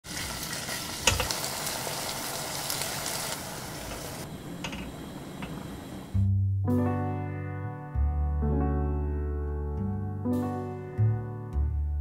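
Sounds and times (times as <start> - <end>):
chicken sizzling in hot oil: 0.0 - 4.3.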